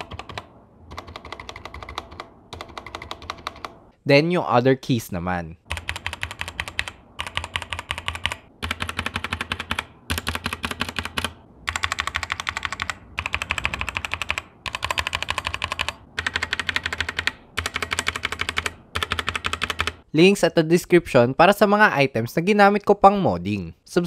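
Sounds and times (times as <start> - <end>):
mechanical keyboard keys clacking: 0.0 - 3.8, 5.7 - 20.0.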